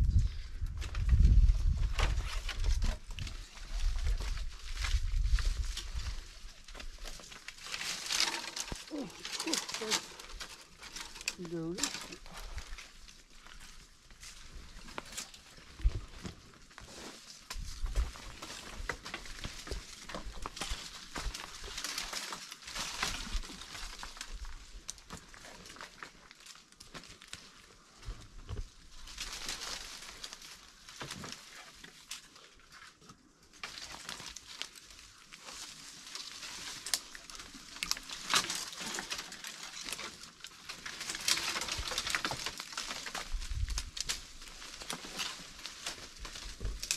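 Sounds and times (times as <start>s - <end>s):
leaves and twigs rustling: 0.0s - 46.9s.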